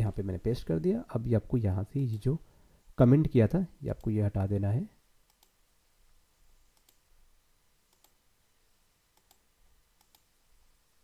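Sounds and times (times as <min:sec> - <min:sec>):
mouse and keyboard clicks: 0:07.9 - 0:08.2, 0:10.0 - 0:10.3.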